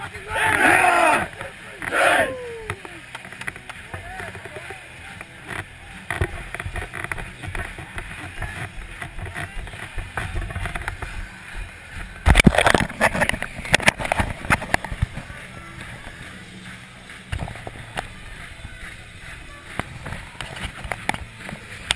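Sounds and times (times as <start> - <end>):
hand rubbing and knocking camera: 5.5 - 15.3.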